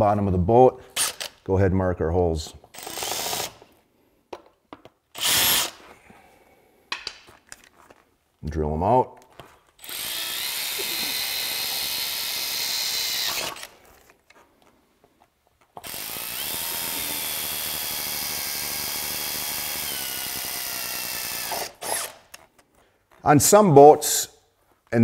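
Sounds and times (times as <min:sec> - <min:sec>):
cordless drill whining: 0:02.7 - 0:03.7, 0:05.1 - 0:05.9, 0:09.8 - 0:14.4, 0:15.8 - 0:22.6.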